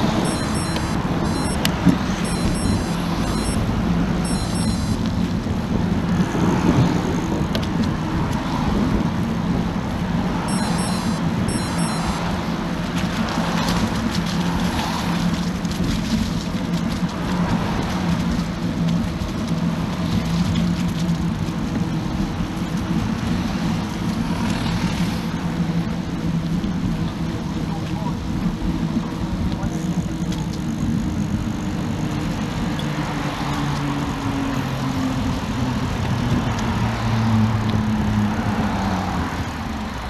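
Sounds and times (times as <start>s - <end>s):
bicycle riding rumble: 0.0s - 40.0s
cars passing: 0.0s - 40.0s.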